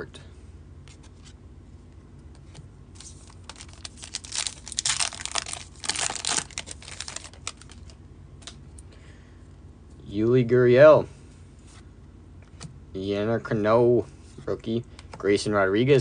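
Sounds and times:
plastic wrapper crinkling: 3.0s - 8.6s.

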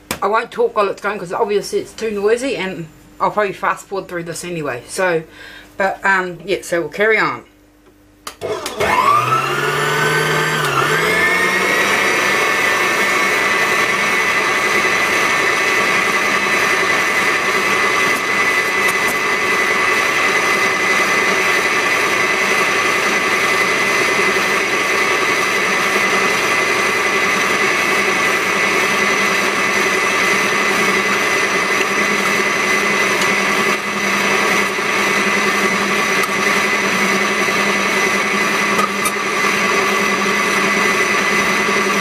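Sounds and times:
stand mixer motor whine: 8.3s - 42.0s.

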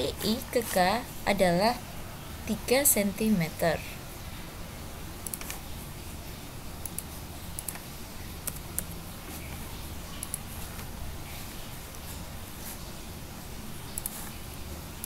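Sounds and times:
steady low hum: 0.0s - 15.0s
mouse and keyboard clicks: 5.2s - 5.6s, 6.8s - 10.9s, 13.9s - 14.4s.

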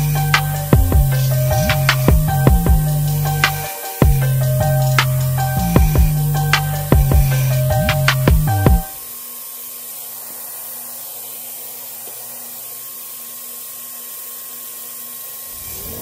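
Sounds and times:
music: 0.0s - 9.0s
shop machine whirring: 0.0s - 16.0s.

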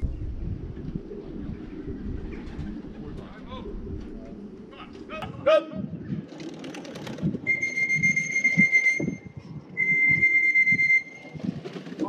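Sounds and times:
high-pitched whistle tones: 7.5s - 11.2s.

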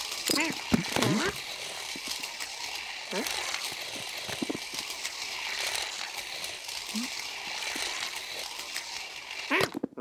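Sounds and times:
slot car whirring on track: 0.0s - 9.5s.

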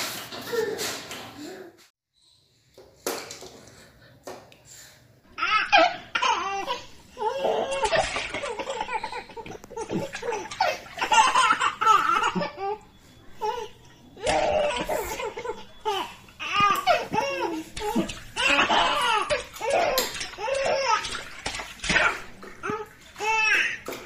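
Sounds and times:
toddler laughing: 5.4s - 12.8s.

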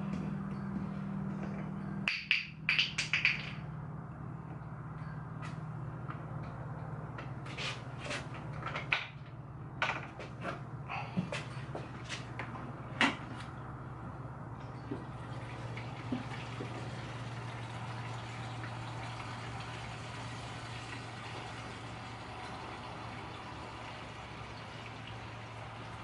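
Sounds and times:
gasoline pouring into fuel tank: 14.9s - 26.0s.

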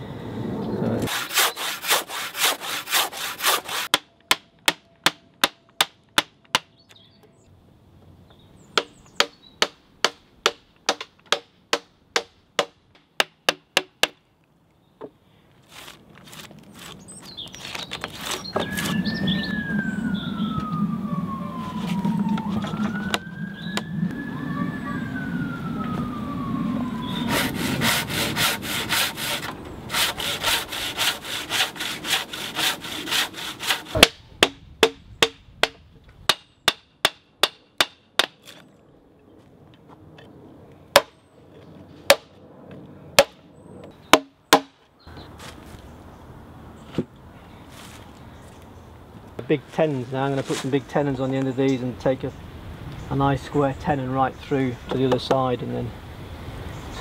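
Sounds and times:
low traffic rumble: 0.0s - 57.0s
handsaw cutting log: 1.0s - 4.0s, 27.2s - 34.6s
emergency vehicle siren wailing: 18.6s - 27.8s.

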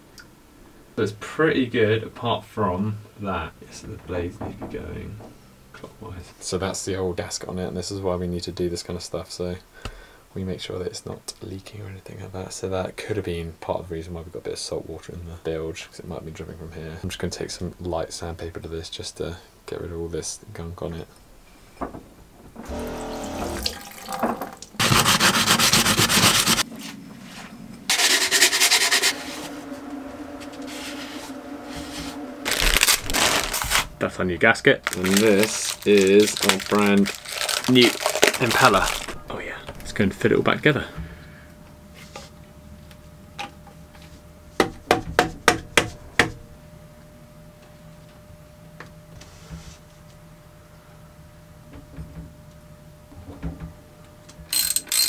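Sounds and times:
water running at sink: 22.6s - 26.6s
sandpaper rubbing on metal: 24.8s - 26.7s, 27.9s - 29.6s.

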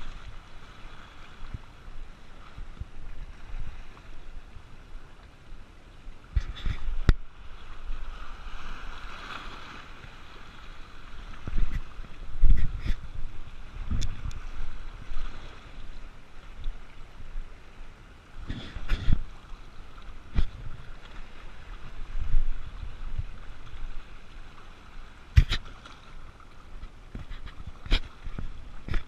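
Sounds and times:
waves splashing on rocks: 6.3s - 16.3s.

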